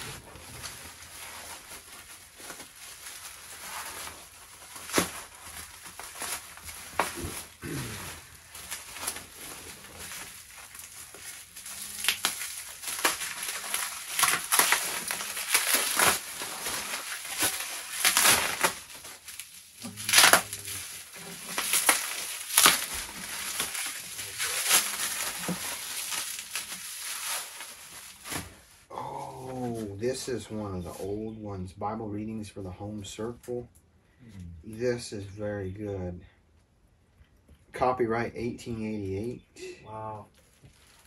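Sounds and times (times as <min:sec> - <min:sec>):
bubble wrap crinkling: 0:00.0 - 0:30.0, 0:40.2 - 0:41.0.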